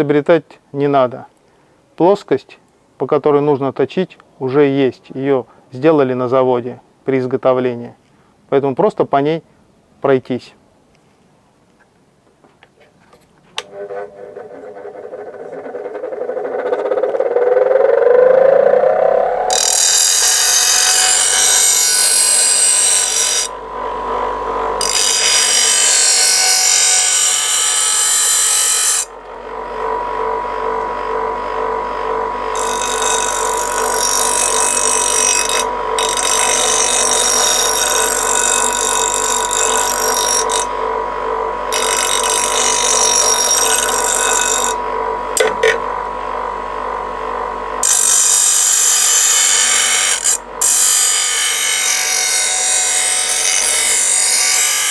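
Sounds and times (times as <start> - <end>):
steel blade grinding on stone: 13.6 - 17.2, 19.5 - 23.5, 24.8 - 29.1, 32.5 - 40.7, 41.7 - 44.8, 47.8 - 54.9
bench grinder whine: 13.6 - 54.9.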